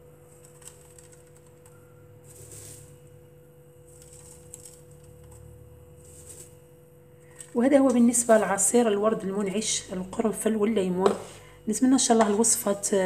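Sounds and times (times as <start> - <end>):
dried petals crackling and rustling: 0.0 - 9.0
low steady hum: 0.0 - 13.0.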